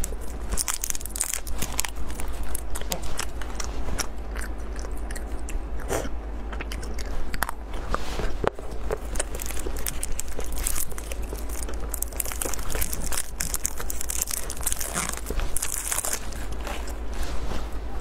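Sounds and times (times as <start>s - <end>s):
plastic wrapper crinkling and tearing: 0.0s - 3.8s, 8.9s - 17.1s
chewing: 0.0s - 17.7s.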